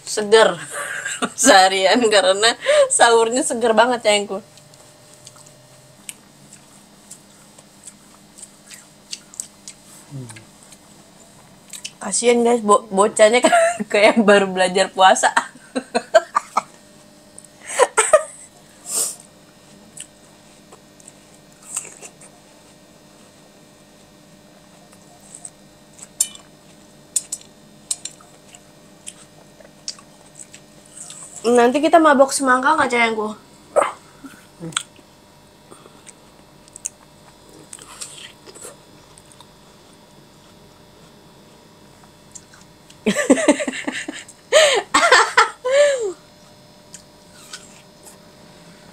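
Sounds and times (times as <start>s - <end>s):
woman laughing: 0.4s - 1.8s, 2.5s - 3.1s, 13.2s - 14.3s, 15.2s - 16.8s, 17.6s - 18.5s, 43.1s - 46.2s
person whimpering: 10.1s - 10.4s, 45.6s - 46.2s.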